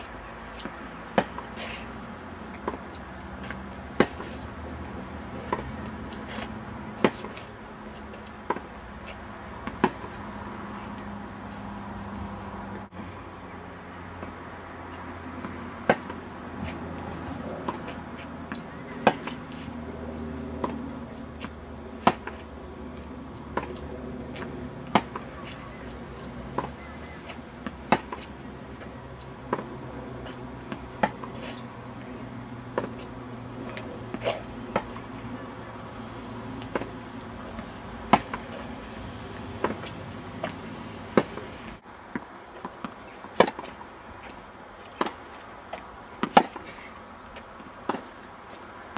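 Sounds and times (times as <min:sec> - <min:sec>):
tennis ball struck by rackets: 0:00.0 - 0:01.9, 0:02.5 - 0:04.4, 0:05.4 - 0:07.5, 0:09.6 - 0:10.3, 0:15.4 - 0:16.8, 0:17.5 - 0:19.6, 0:20.5 - 0:22.5, 0:24.4 - 0:28.4, 0:29.4 - 0:31.7, 0:32.7 - 0:35.1, 0:36.6 - 0:43.8, 0:44.9 - 0:45.2, 0:46.2 - 0:46.6.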